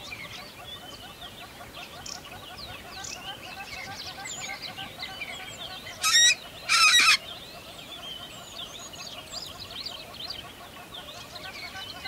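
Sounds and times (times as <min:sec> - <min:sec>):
small birds chirping: 0:00.0 - 0:12.0
harsh bird calls: 0:05.5 - 0:07.3.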